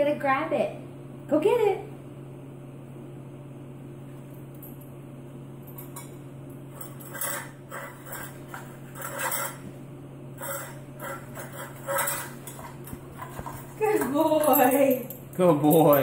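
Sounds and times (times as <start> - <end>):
low steady hum: 0.0 - 16.0
metal tin clanking on tile floor: 10.4 - 15.1.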